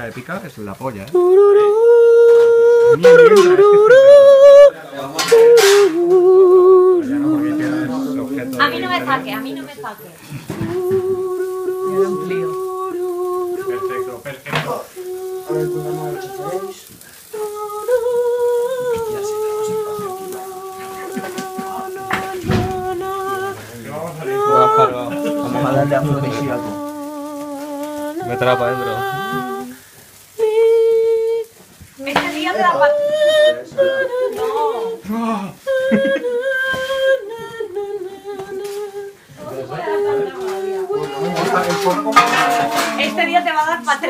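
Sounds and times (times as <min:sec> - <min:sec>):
person singing wordless high tune: 0:01.1 - 0:09.8, 0:10.5 - 0:14.3, 0:14.9 - 0:43.5
person humming: 0:01.2 - 0:09.7, 0:10.3 - 0:14.2, 0:15.0 - 0:32.2, 0:32.8 - 0:43.3.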